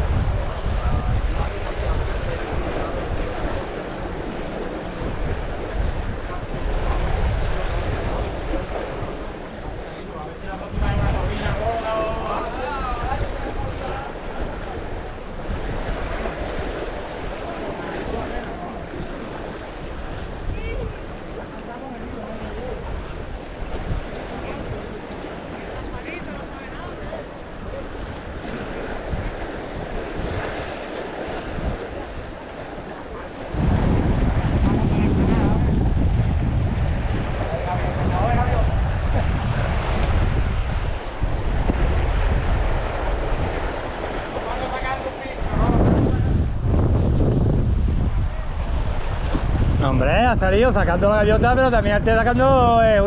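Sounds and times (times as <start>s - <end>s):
waves breaking against concrete: 0.0s - 53.0s
wind buffeting microphone: 0.0s - 53.0s.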